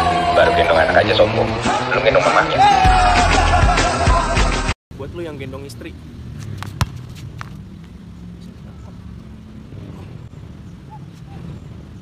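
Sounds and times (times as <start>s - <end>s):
basketball bouncing on concrete: 6.6s - 7.6s.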